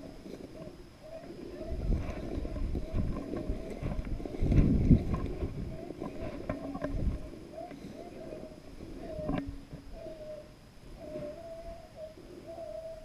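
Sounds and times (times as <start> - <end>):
wind buffeting microphone: 0.0 - 10.4
footsteps through dry grass: 1.1 - 7.3.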